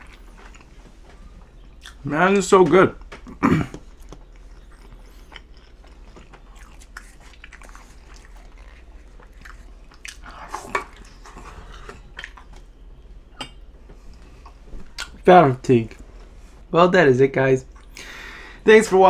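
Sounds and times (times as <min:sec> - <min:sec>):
crunchy chewing: 0:00.0 - 0:02.1, 0:03.0 - 0:12.7
chewing with wet mouth clicks: 0:01.5 - 0:02.0, 0:03.0 - 0:12.7, 0:14.1 - 0:15.2.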